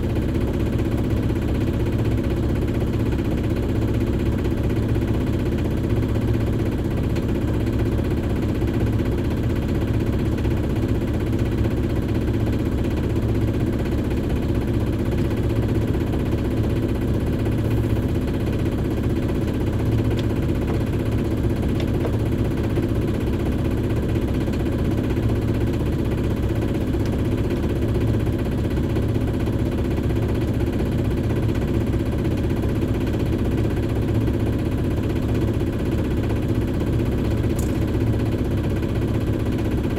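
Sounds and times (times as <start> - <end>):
boat engine droning: 11.8 - 39.9.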